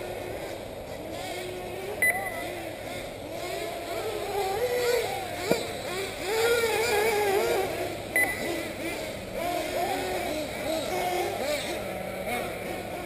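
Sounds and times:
nitro rc engines buzzing: 0.0 - 13.0
short beep: 2.0 - 2.4, 8.2 - 8.5.

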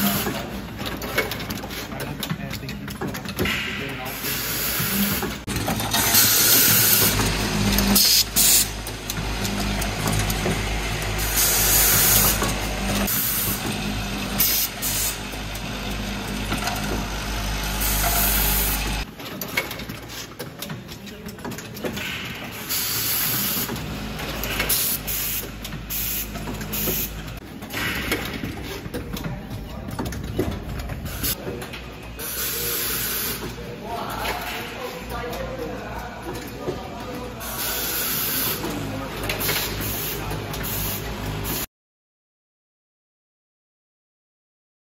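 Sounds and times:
pneumatic hissing bursts: 4.1 - 5.4, 6.0 - 7.2, 8.0 - 8.7, 11.2 - 12.4, 14.4 - 15.2, 22.5 - 23.7, 24.6 - 28.8, 32.2 - 33.4, 37.4 - 38.6.

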